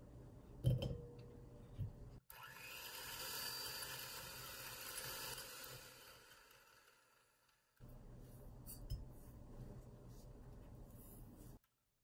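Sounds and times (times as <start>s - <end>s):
electric hand mixer whisking: 2.3s - 7.6s.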